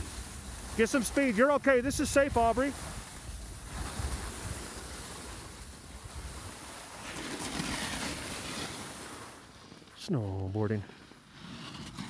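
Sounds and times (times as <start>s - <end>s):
wind buffeting microphone: 0.0s - 6.7s
skis sliding over snow: 0.0s - 12.0s.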